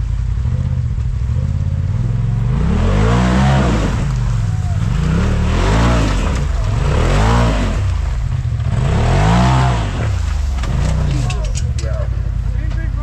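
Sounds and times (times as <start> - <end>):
engine revving in bursts: 1.4 - 11.4.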